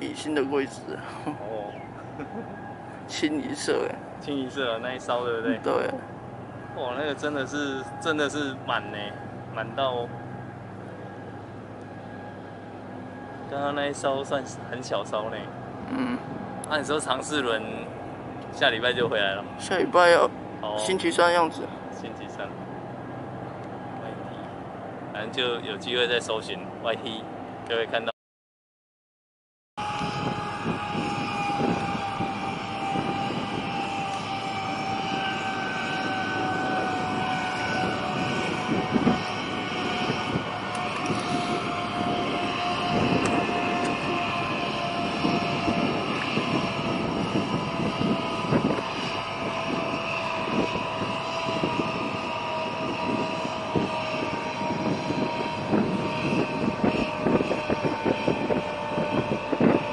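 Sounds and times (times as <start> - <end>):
engine drone falling in pitch: 0.0 - 28.0, 29.8 - 59.9
outdoor noise: 0.0 - 28.1.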